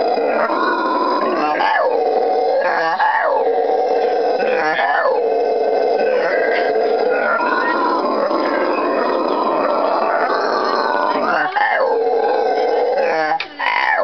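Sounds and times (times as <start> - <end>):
howler monkeys howling: 0.0 - 14.0.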